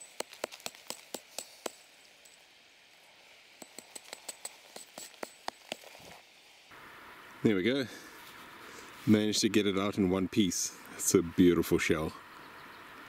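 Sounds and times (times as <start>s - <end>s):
rock hammer clinking taps: 3.6s - 5.8s.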